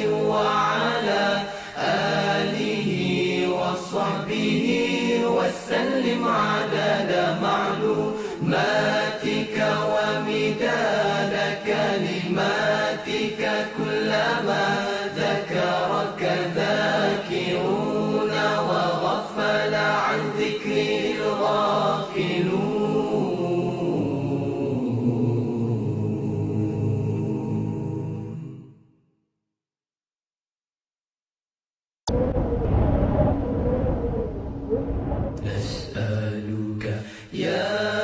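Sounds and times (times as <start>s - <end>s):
voice chanting unaccompanied: 35.4s - 38.0s.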